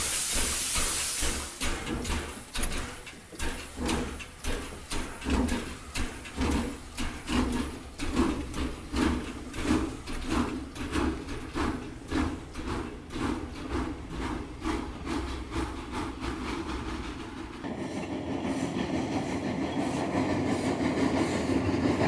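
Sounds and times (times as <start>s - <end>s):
locomotive exhaust chuffs: 0.0s - 22.0s
steam hissing: 0.0s - 22.0s.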